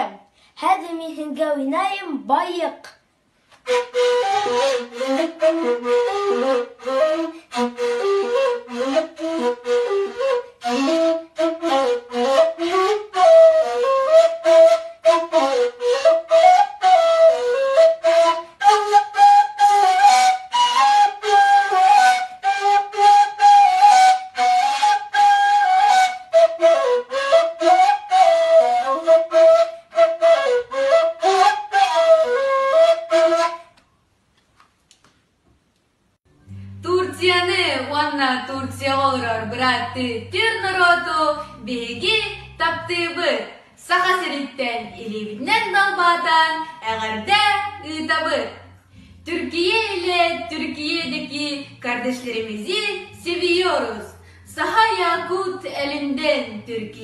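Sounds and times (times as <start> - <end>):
end-blown flute melody: 3.6 - 33.7, 36.3 - 43.0.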